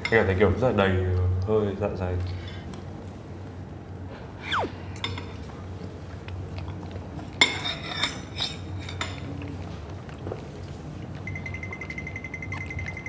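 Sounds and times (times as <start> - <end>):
short falling tone: 4.4 - 4.9
utensils clinking against dishes: 7.4 - 9.2.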